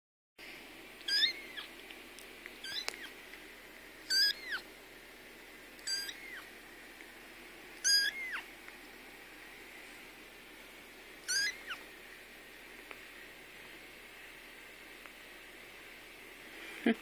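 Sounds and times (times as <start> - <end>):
kitten mewing: 1.1 - 1.7, 2.6 - 3.2, 4.1 - 4.7, 5.8 - 6.5, 7.8 - 8.5, 11.2 - 11.8.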